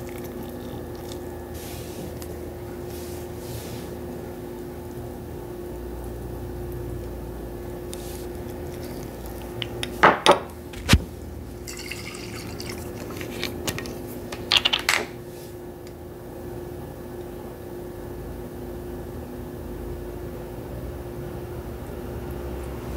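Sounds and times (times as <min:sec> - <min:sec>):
steady low hum: 0:00.0 - 0:14.5.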